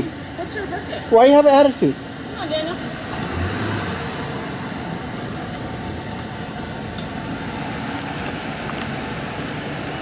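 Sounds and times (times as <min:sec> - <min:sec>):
vehicle engine hum: 0:00.0 - 0:10.0.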